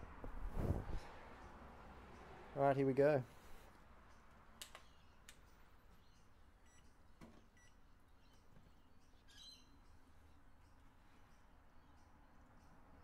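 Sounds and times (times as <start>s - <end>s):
short faint beeps: 6.6s - 6.9s, 7.6s - 7.8s.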